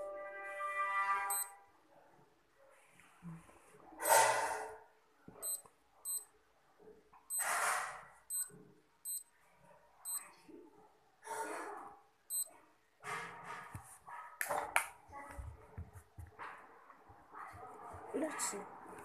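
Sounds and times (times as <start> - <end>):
digital watch beeping: 1.3 - 1.5, 5.4 - 6.3, 8.3 - 9.3, 10.1 - 10.3.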